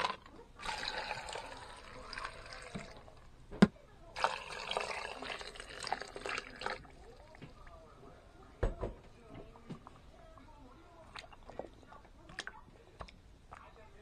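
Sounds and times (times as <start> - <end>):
water pouring into a steel pot: 0.0 - 3.2, 4.2 - 7.2.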